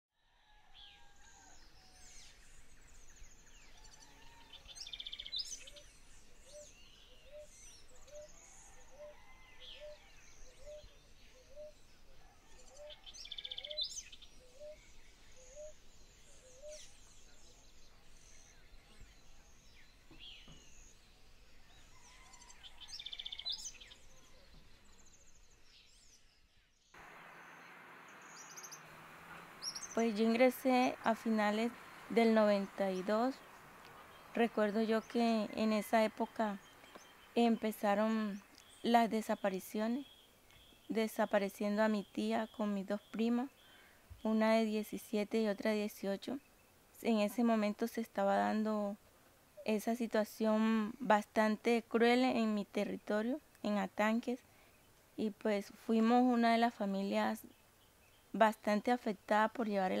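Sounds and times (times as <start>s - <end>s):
birds chirping and trilling: 0.7s - 48.9s, 54.0s - 60.0s
background hiss: 1.3s - 60.0s
buzzy bird calls: 27.0s - 40.1s.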